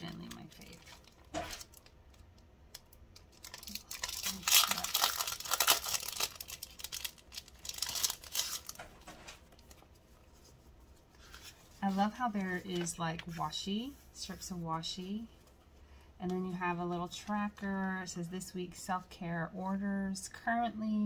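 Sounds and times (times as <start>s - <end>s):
cellophane sleeve crinkling: 0.0s - 10.5s.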